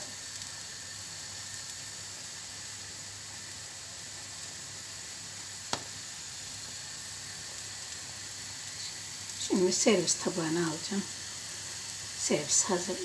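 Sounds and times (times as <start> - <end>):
fritter sizzling in a pan: 0.0 - 13.0.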